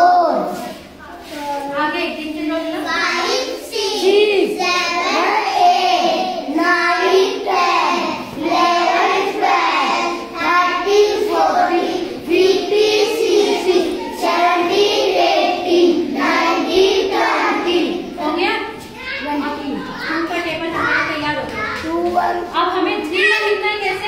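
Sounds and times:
children chanting in unison: 0.0 - 0.8, 2.8 - 18.2.

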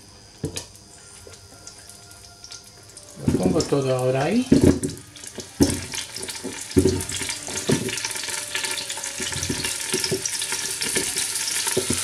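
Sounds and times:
crackling sizzle: 0.0 - 12.0
potatoes thudding into pot: 4.4 - 8.0.

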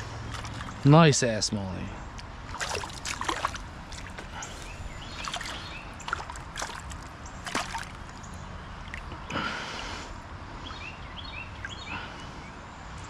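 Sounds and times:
light splashes in water: 0.3 - 0.8, 2.4 - 9.2.

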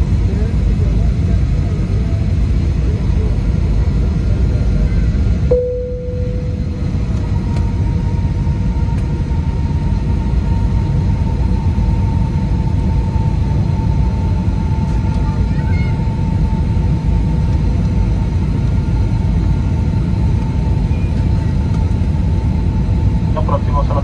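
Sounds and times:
aircraft cabin engine rumble: 0.0 - 24.0
thin steady whine: 5.5 - 14.9.

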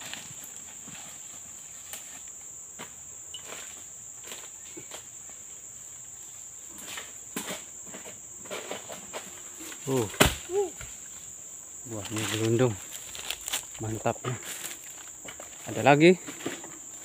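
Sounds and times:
rustling: 6.2 - 17.0.

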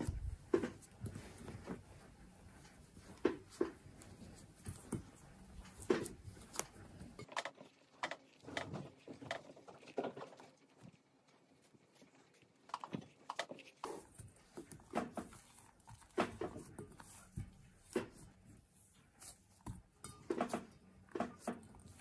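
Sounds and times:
hands kneading dough: 0.0 - 22.0.

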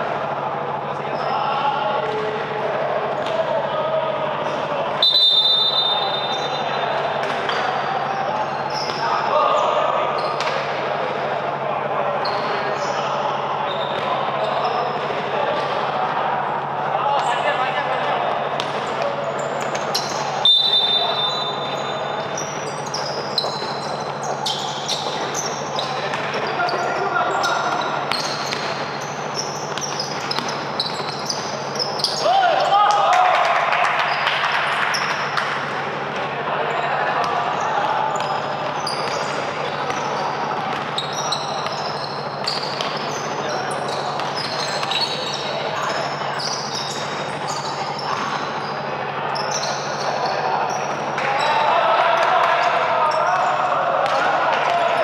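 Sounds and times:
hubbub of hall: 0.0 - 55.0
sneaker squeaks on court: 5.0 - 6.9, 8.4 - 10.7, 12.2 - 13.1, 13.7 - 15.7, 18.6 - 32.7, 37.2 - 51.6.

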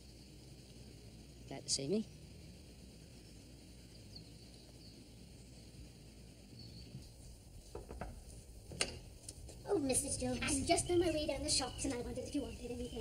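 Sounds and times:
faint low rumble: 0.0 - 13.0
soft knocks: 7.7 - 9.0.

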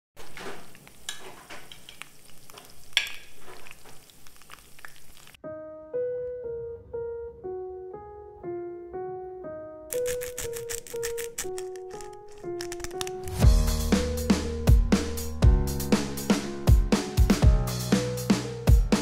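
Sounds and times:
steak sizzling in a pan: 0.2 - 5.4
solo piano melody: 5.4 - 19.0.

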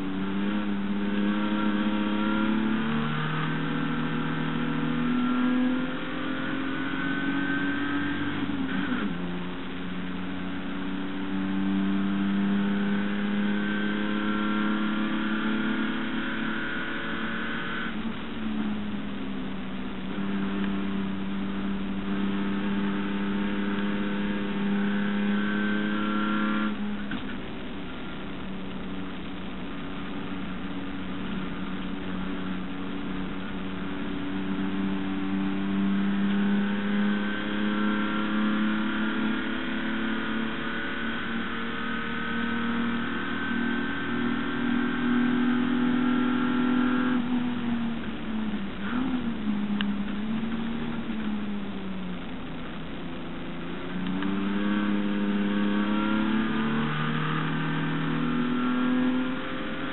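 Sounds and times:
race car engine under load: 0.0 - 59.9.

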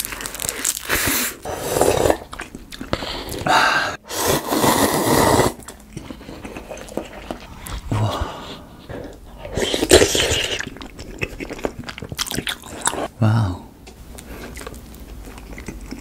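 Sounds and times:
biting and chewing: 0.0 - 3.5, 5.6 - 8.0, 9.1 - 13.1, 14.2 - 16.0
slurping noodles: 0.8 - 8.7, 9.4 - 11.7.

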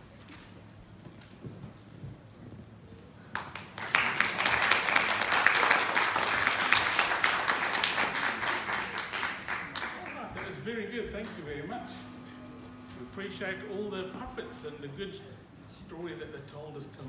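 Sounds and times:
audience applauding: 3.3 - 10.6.

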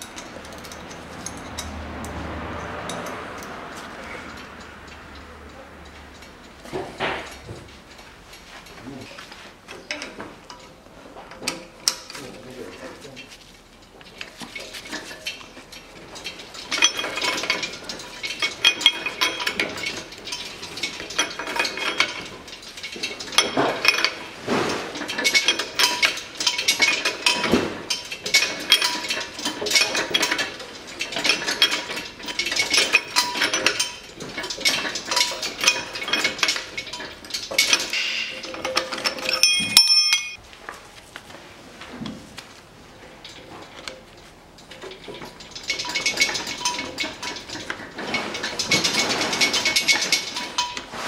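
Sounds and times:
metallic ring: 14.6 - 40.4.

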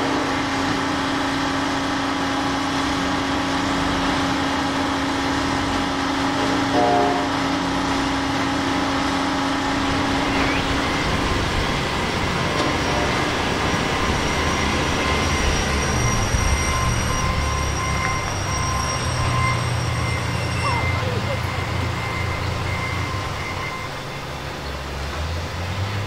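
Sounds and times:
diesel engines rumbling: 0.0 - 26.0
high squealing tones: 5.8 - 24.7.

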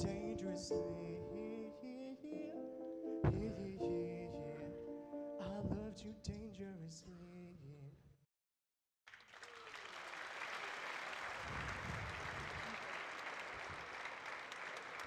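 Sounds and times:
grand piano: 0.0 - 6.8
person singing: 0.0 - 7.8
audience applauding: 9.1 - 15.0.

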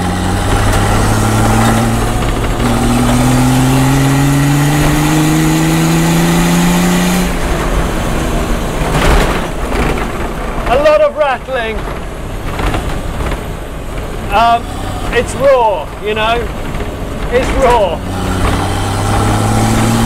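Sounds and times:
diesel car engine accelerating: 0.0 - 20.0.

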